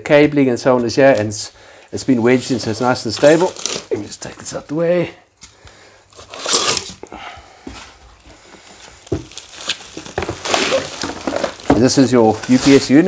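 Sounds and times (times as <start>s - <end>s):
bubble wrap rustling and crinkling: 2.0s - 4.8s, 6.1s - 7.0s, 7.8s - 13.0s.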